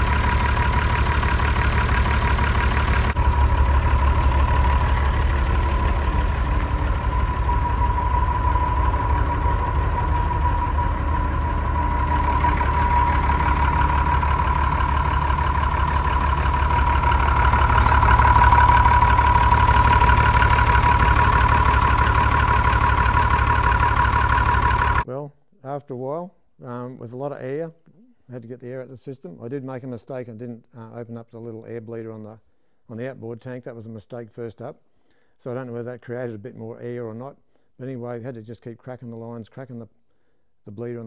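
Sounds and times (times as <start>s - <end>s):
diesel truck engine idling: 0.0s - 25.0s
steady whine: 0.0s - 25.0s.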